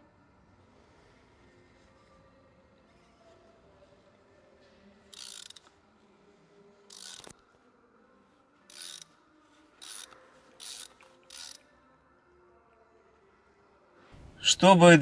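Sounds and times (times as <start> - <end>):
ratchet wrench clicking: 5.1 - 5.7, 6.9 - 7.3, 8.7 - 9.1, 9.8 - 11.6.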